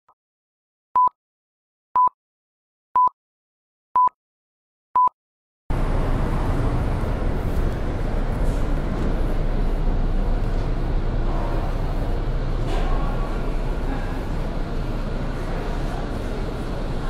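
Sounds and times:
shopping arcade background rumble: 5.7s - 17.0s.

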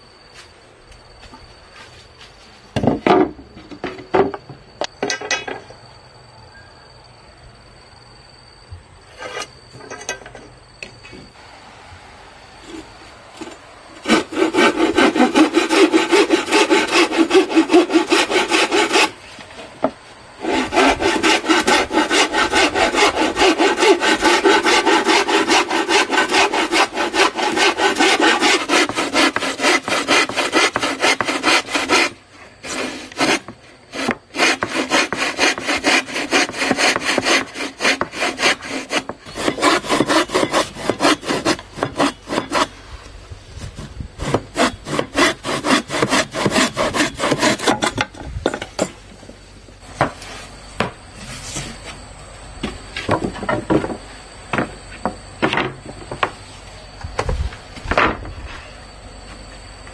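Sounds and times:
bow saw cutting wood: 12.6s - 19.4s, 20.4s - 42.8s, 43.7s - 48.2s.

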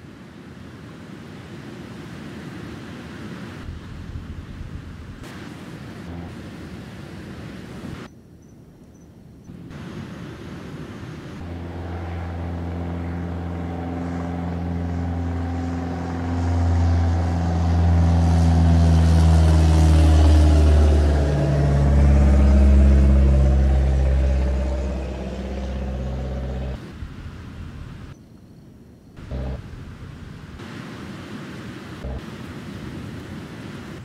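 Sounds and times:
motor boat engine drone: 3.6s - 8.1s, 9.5s - 28.1s, 29.2s - 30.6s, 32.0s - 32.4s.

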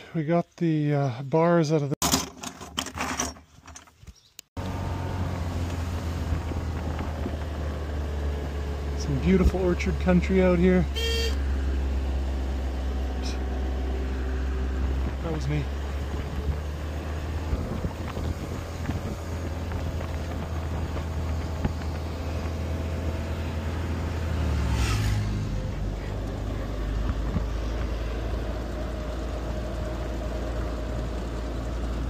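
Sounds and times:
road and wind noise: 2.1s - 32.0s
truck engine running: 4.6s - 32.0s.

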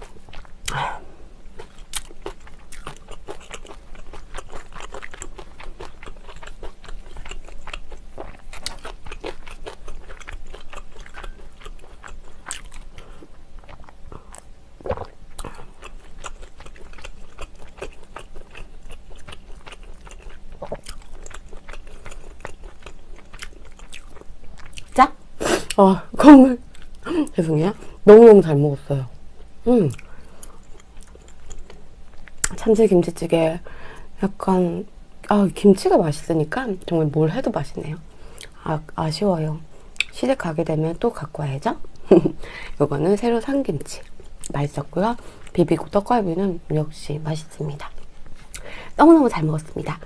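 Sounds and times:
person chewing: 0.0s - 25.8s, 26.6s - 27.1s, 29.4s - 32.6s, 47.9s - 48.7s.

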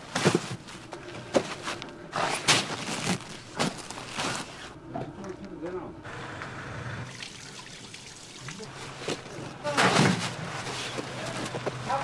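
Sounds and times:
cabbages thudding: 2.3s - 4.5s.

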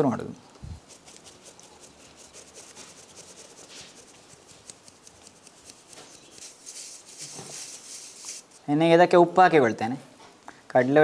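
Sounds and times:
flour rubbed through wire sieve: 0.6s - 8.7s.

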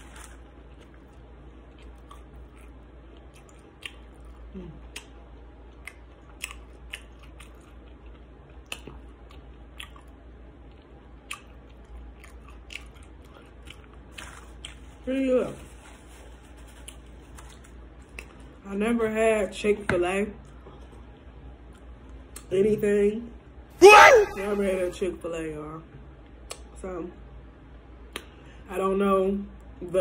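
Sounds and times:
person chewing food: 0.0s - 15.0s
wet mouth clicks and smacks: 5.8s - 7.7s, 26.5s - 26.7s.

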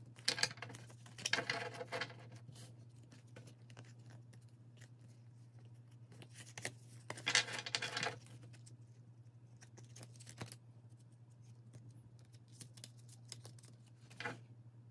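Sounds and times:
cards rustling together: 0.3s - 8.8s, 9.5s - 14.4s
playing cards clicking and sliding: 6.1s - 8.6s.

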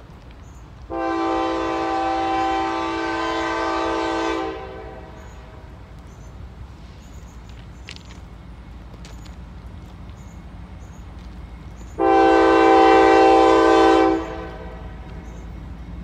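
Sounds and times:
locomotive air horn blast: 0.9s - 5.7s, 12.0s - 15.0s.

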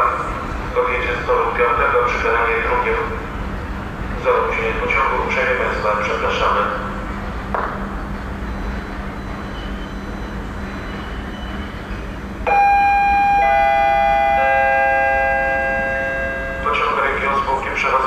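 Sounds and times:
descending three-note chime: 12.5s - 16.9s.

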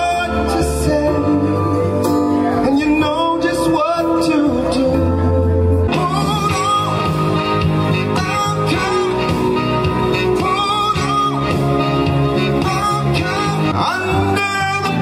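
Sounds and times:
instrumental accompaniment: 0.0s - 15.0s
man singing into a microphone: 0.0s - 15.0s.

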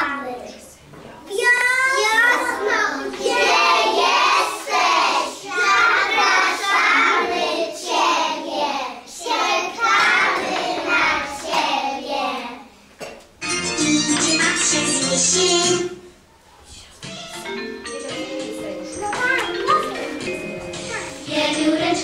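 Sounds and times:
young children singing: 1.4s - 12.7s, 18.1s - 22.0s.

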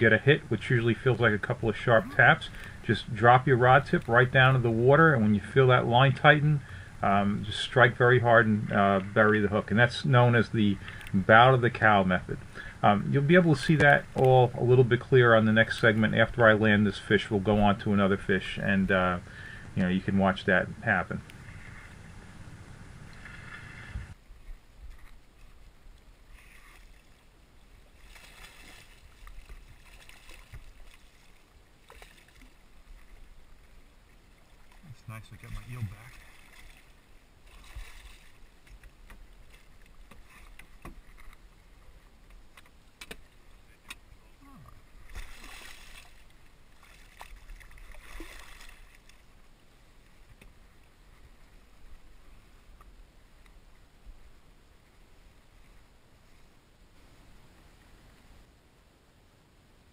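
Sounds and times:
fish splashing at water surface: 45.1s - 49.1s.

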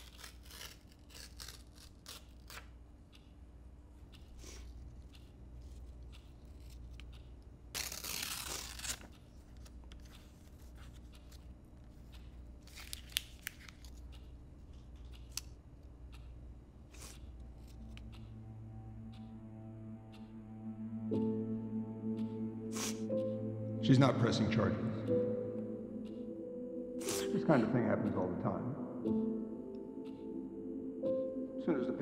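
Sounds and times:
paper tearing: 0.0s - 2.7s, 7.8s - 9.1s
low room hum: 0.0s - 32.0s
paper snapping: 12.6s - 13.9s.

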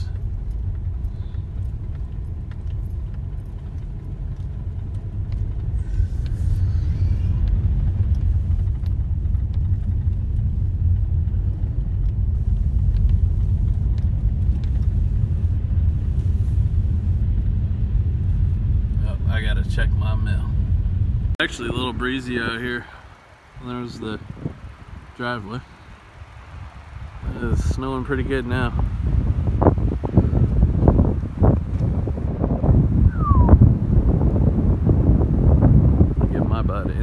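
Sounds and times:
car driving on snowy road: 0.0s - 37.0s.

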